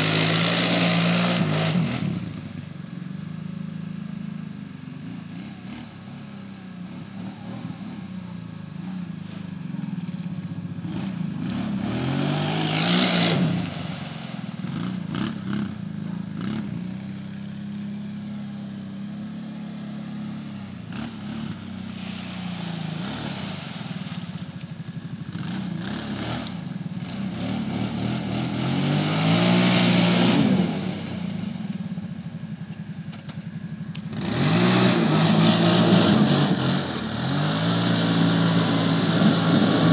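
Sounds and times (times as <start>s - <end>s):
atv engine revving: 0.0s - 39.9s.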